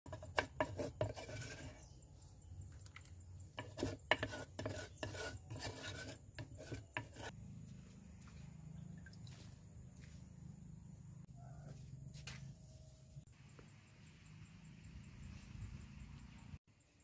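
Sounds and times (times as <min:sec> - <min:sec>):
pestle grinding in a mortar: 0:00.1 - 0:01.7, 0:03.6 - 0:07.3.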